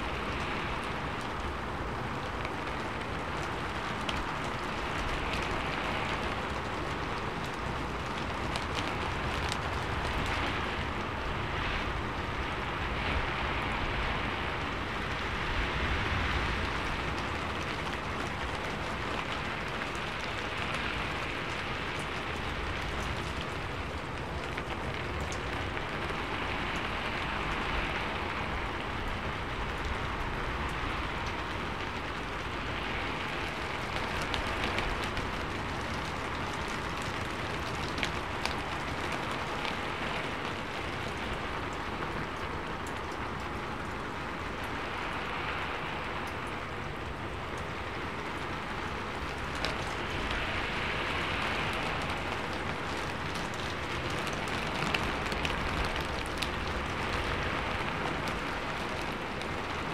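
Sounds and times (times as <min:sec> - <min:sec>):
rain on a metal roof: 0:00.0 - 0:59.9.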